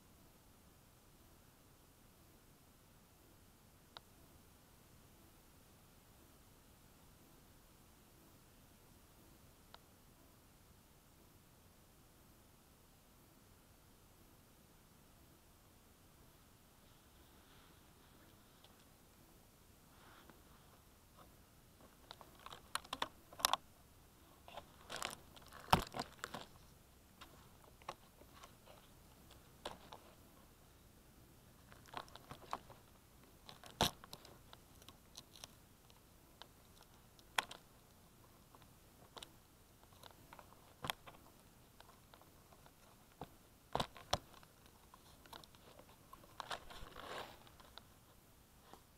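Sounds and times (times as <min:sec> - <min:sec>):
crinkly rustle: 0:19.9 - 0:23.6, 0:24.2 - 0:30.5, 0:31.6 - 0:48.9
clicks and taps on camera: 0:22.0 - 0:23.6.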